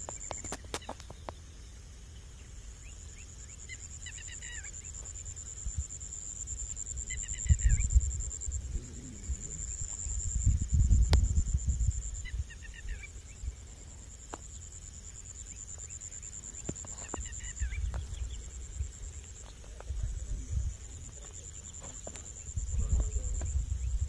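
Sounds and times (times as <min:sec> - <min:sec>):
insects droning: 0:00.0 - 0:24.0
low rumbles: 0:07.4 - 0:12.2.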